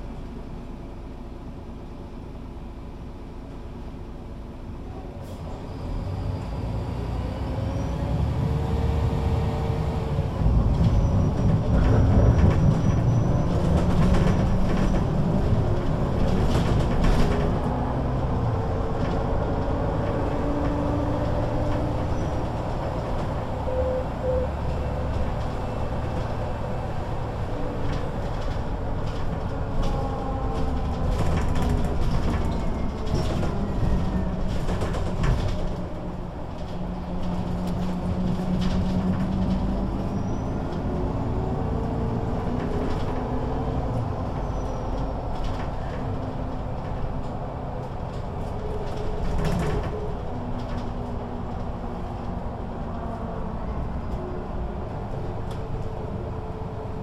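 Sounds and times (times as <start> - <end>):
diesel bus engine rumble: 0.0 - 57.0.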